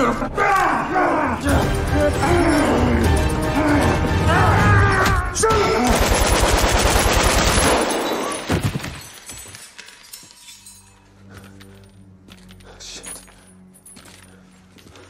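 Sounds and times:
automatic gunfire: 5.8 - 8.0.

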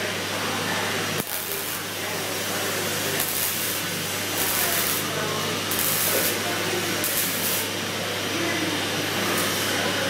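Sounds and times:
low electrical hum: 0.0 - 9.1
welding arc hissing and crackling: 1.1 - 7.8.

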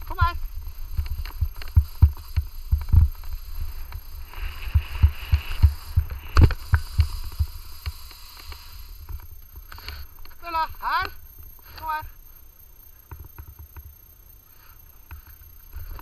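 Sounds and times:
wind thumps on microphone: 0.0 - 9.4
skis scraping on crusty snow: 0.0 - 10.1.

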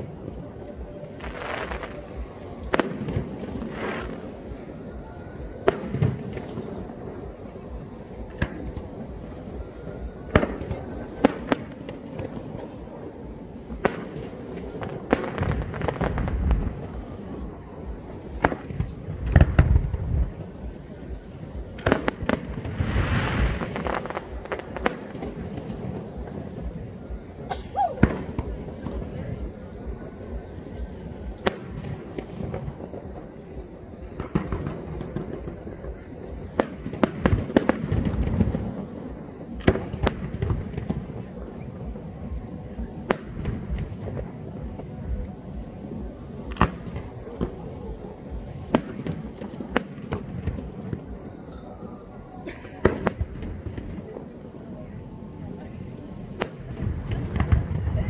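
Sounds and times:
fireworks bangs: 0.0 - 54.6, 55.5 - 58.0
firework cracking bangs: 13.6 - 17.3, 21.6 - 26.8, 31.4 - 41.3, 46.5 - 51.3.

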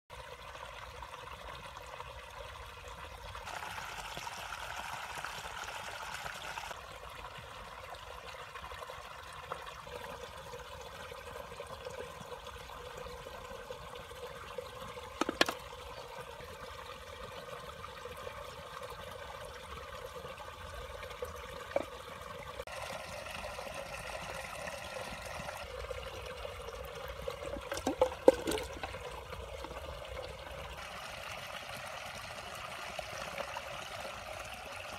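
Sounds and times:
water pouring from pipe: 0.1 - 34.9
toy plopping into water: 15.2 - 15.6, 27.5 - 29.0.

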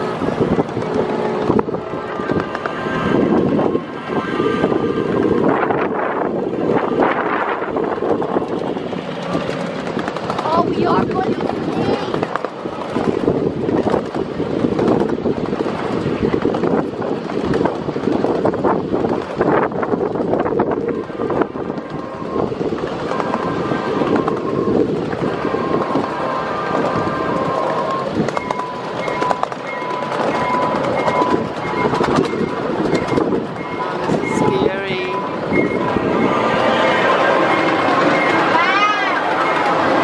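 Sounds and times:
wind on microphone: 0.0 - 38.6
wheels clicking: 4.7 - 40.0
miniature railway cars rattling: 6.4 - 40.0
high steady tone: 20.8 - 40.0.

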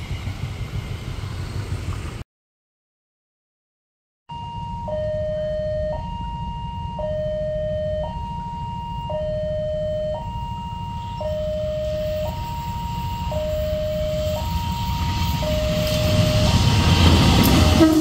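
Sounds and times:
level crossing two-tone alarm: 4.3 - 17.9.

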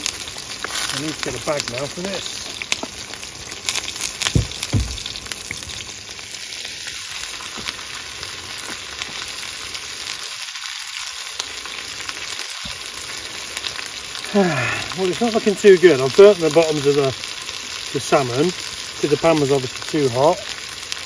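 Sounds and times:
fish sizzling in a pan: 0.0 - 21.0
low knocks: 4.3 - 5.7.

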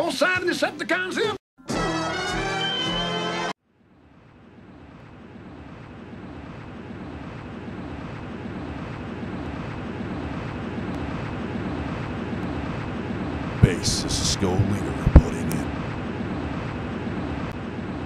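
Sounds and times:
jet engine rushing: 7.1 - 18.0.

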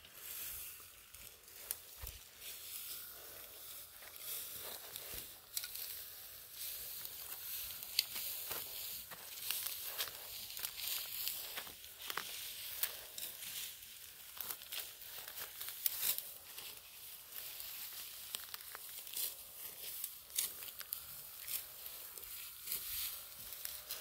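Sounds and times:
dry wheat stalks crackling: 0.0 - 24.0.

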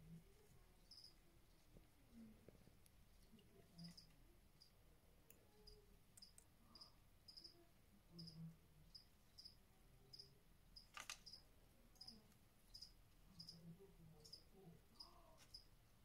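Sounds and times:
cricket chirping: 0.8 - 1.2, 3.8 - 4.7, 5.6 - 7.6, 8.2 - 11.4, 12.0 - 15.7.

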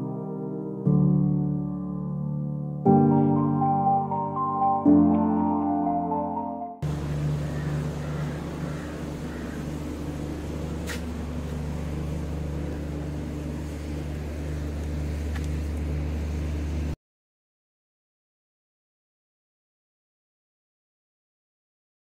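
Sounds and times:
low mechanical hum: 6.8 - 17.0.

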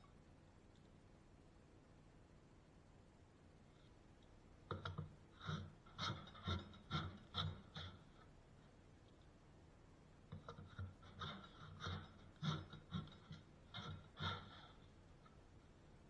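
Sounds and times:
hand plane shaving wood: 4.8 - 8.3, 10.3 - 15.4.

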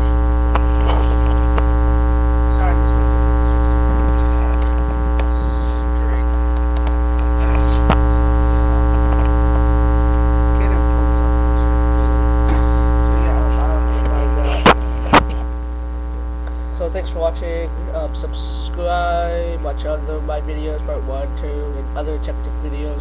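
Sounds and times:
faint speech: 0.0 - 1.6, 2.4 - 8.8, 10.4 - 15.5
electrical mains hum: 0.0 - 23.0.

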